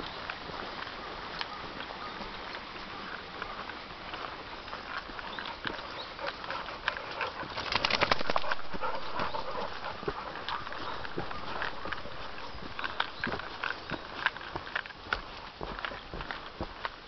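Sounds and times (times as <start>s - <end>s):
footsteps crunching on leaves: 0.0s - 17.0s
dog rustling and scratching: 5.3s - 14.0s.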